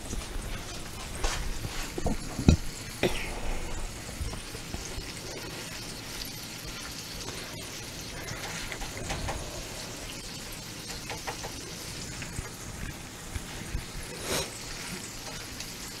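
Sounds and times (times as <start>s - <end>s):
meat sizzling in butter: 0.0s - 16.0s.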